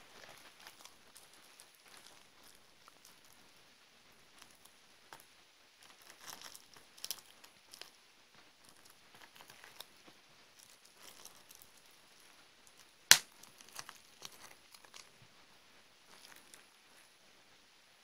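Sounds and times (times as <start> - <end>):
plastic film crinkling and tearing: 0.0 - 3.5, 5.8 - 8.0, 8.6 - 15.2, 16.1 - 17.0
small crackles: 0.0 - 17.8.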